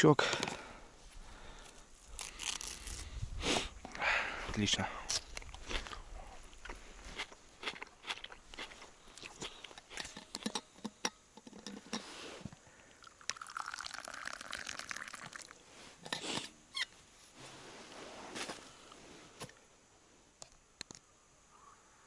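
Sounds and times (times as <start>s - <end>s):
liquid pouring into cup: 13.0s - 15.6s.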